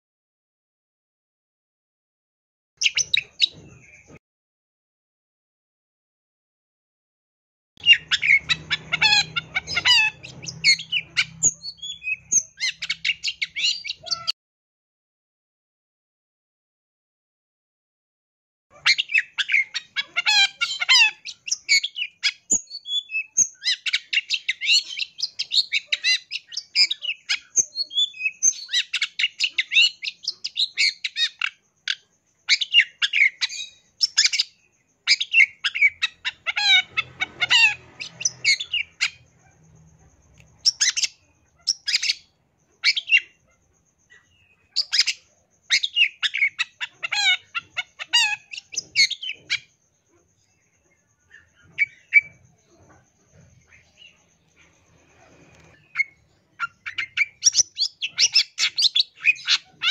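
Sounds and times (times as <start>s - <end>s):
shrike singing chattering song: 7.8s - 14.3s, 18.7s - 59.9s.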